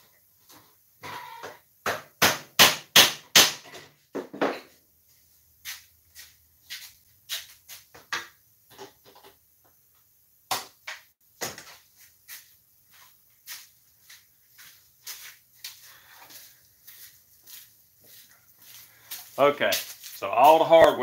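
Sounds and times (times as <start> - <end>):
hammer striking rivets: 1.8 - 3.8.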